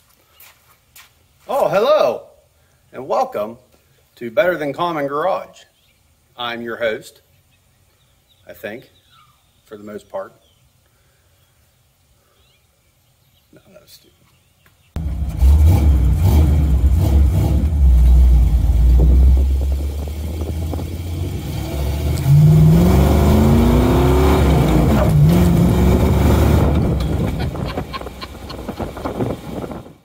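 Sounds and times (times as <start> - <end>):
vehicle engine accelerating: 15.0 - 29.8.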